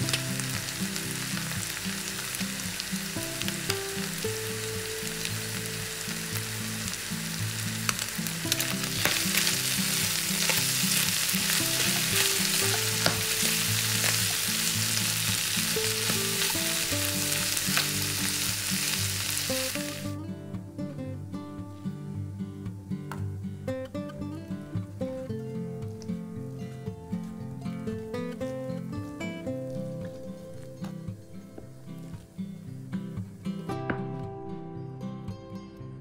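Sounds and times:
food sizzling in hot oil: 0.0s - 20.2s
soft acoustic guitar music: 0.0s - 36.0s.

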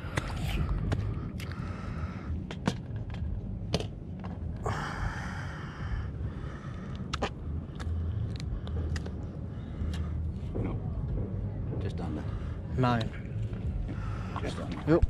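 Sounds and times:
low steady rumble: 0.0s - 15.0s.

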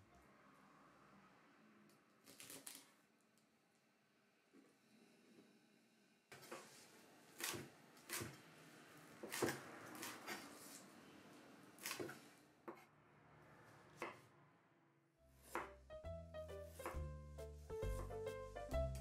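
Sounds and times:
knife chopping on wooden board: 9.2s - 10.2s, 15.4s - 15.8s, 16.8s - 17.1s.

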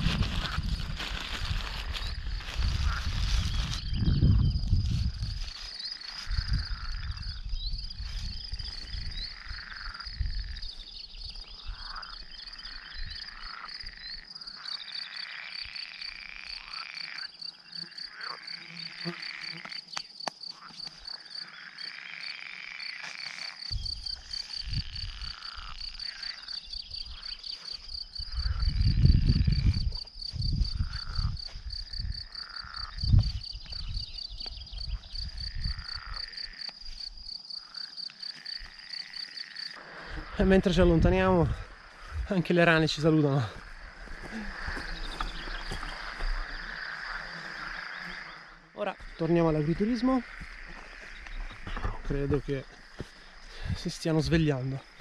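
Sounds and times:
frogs croaking: 0.0s - 55.0s
insects chirring: 0.0s - 55.0s.

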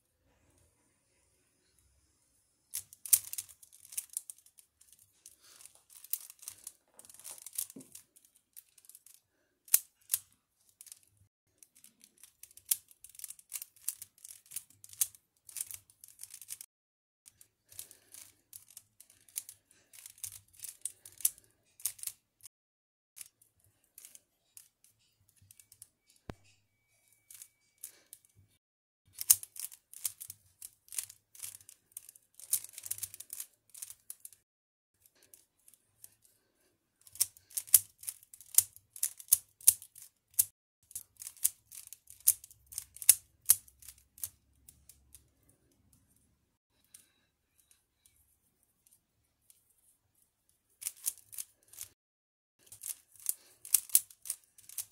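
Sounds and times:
puzzle cube clicking turns: 2.7s - 16.7s, 17.3s - 22.2s, 27.3s - 28.2s, 29.1s - 34.4s, 37.0s - 45.2s, 50.8s - 52.0s, 52.6s - 54.9s.

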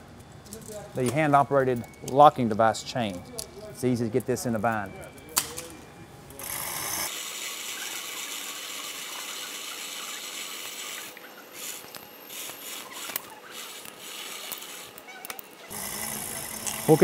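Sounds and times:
chain hoist ratcheting: 11.6s - 17.0s.

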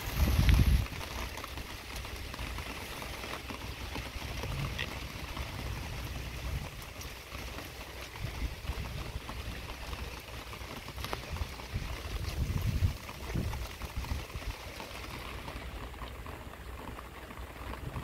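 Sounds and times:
heavy rain falling: 0.0s - 18.0s
sharp drip ticks: 0.4s - 18.0s
low thunder rumble: 10.5s - 16.8s.

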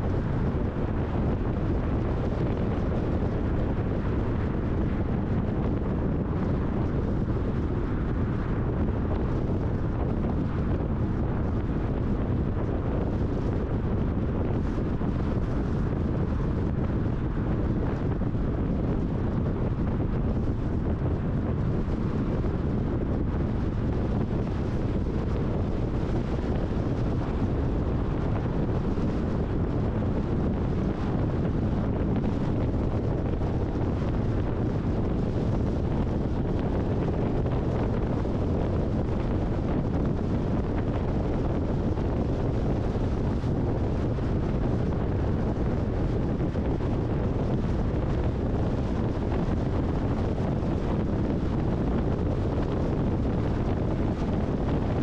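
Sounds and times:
car road and wind noise: 0.0s - 55.0s.

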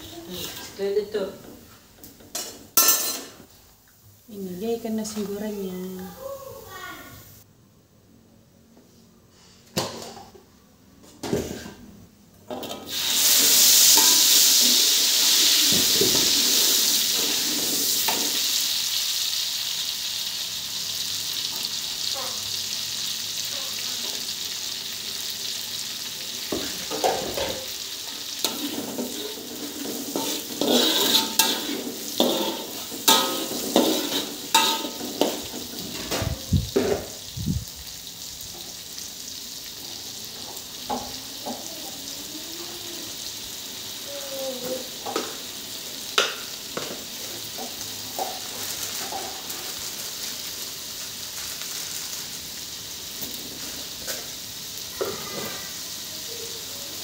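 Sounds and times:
metal spatula scraping wok: 0.0s - 1.1s, 12.5s - 18.6s, 26.5s - 37.1s
paste sizzling in hot oil: 12.5s - 57.0s.

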